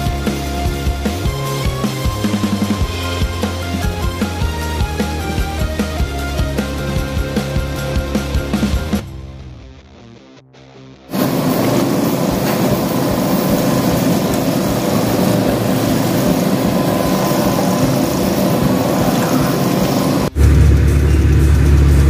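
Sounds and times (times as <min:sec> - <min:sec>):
machinery rushing noise: 0:11.1 - 0:22.0
car engine droning: 0:11.2 - 0:22.0.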